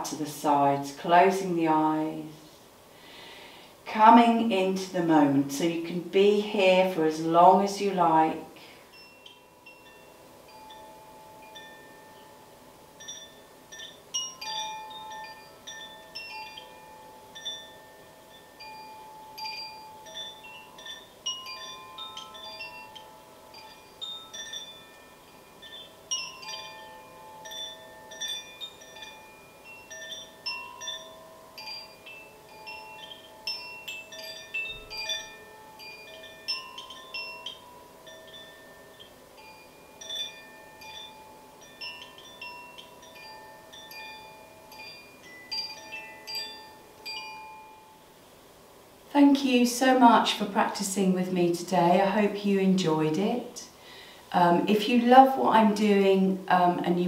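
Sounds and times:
wind chime ringing: 8.2 - 48.6.

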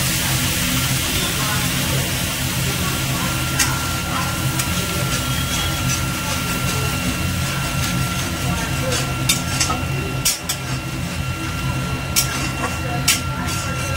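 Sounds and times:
spices sizzling in hot oil: 0.0 - 13.9
metal spatula scraping pan: 3.5 - 13.9.

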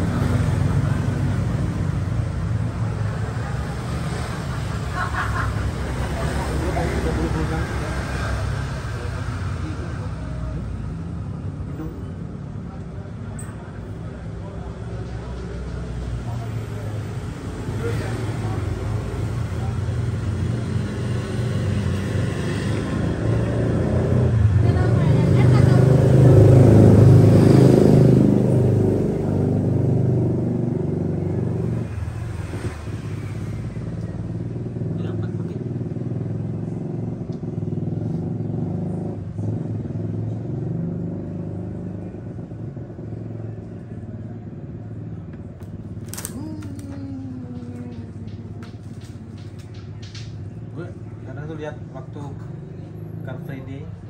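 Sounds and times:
vehicle engine humming: 0.0 - 54.0
constant hum: 42.0 - 52.9.

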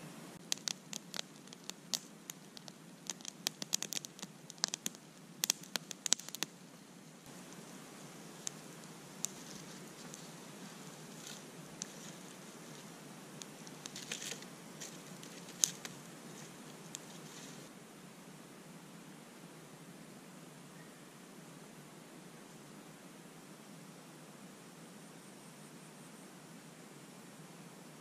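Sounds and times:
campfire crackling and popping: 0.4 - 17.7.

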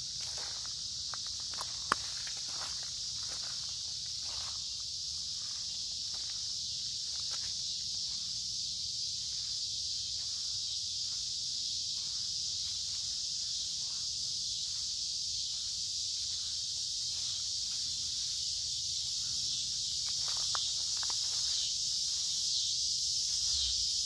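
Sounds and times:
cicadas droning: 0.0 - 24.0
faint footsteps: 9.2 - 24.0.

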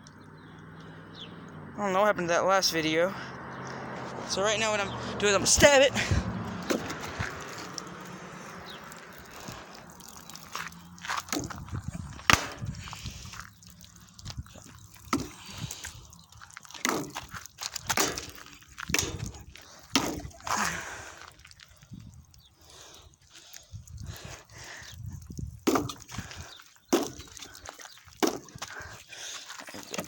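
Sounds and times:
water dripping and sloshing: 6.2 - 30.0
knife stabbing plastic jug: 6.5 - 7.9, 8.9 - 13.6, 14.3 - 16.0, 16.6 - 20.7, 25.6 - 27.6, 28.2 - 28.8.

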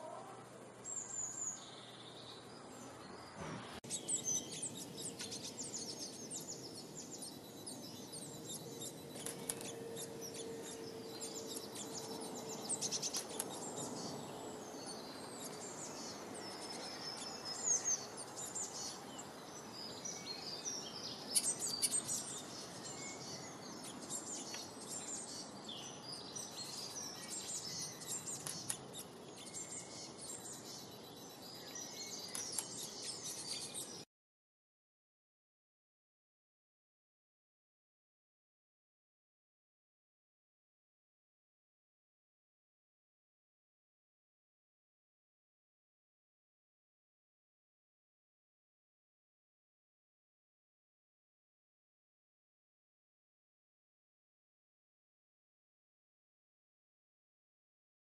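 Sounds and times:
songbirds chirping and trilling: 0.0 - 34.1.

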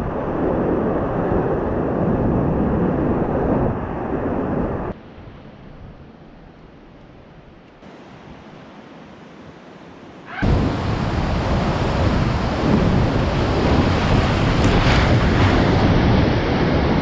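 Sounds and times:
steady rush of moving water: 7.8 - 17.0.

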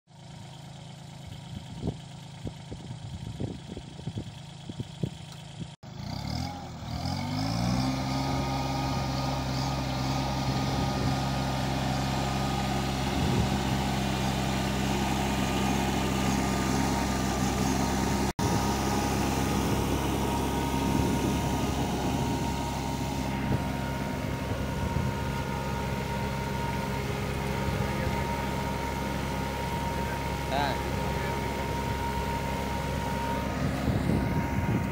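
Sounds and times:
tractor diesel engine revving: 0.2 - 34.9.

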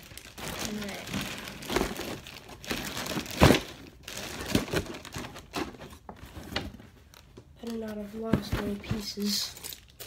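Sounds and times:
plastic bag crinkling: 0.0 - 6.0.

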